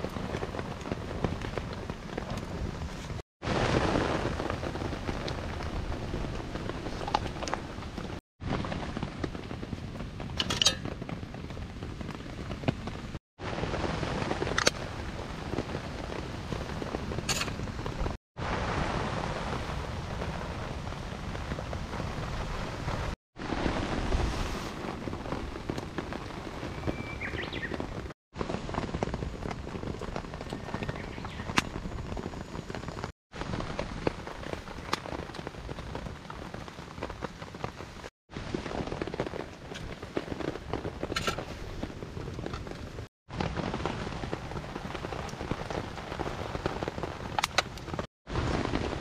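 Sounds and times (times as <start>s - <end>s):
rain pattering on a tarp: 0.0s - 49.0s
wood fire crackling: 0.0s - 49.0s.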